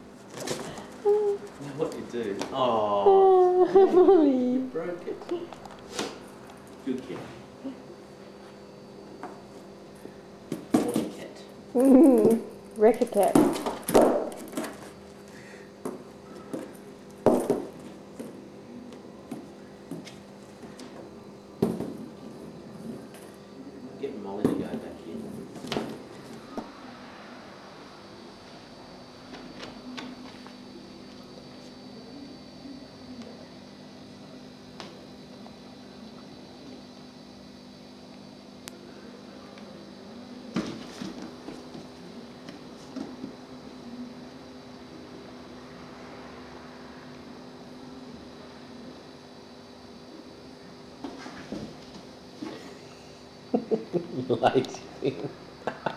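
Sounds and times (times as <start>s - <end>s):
ball knocking in box: 17.2s - 18.3s.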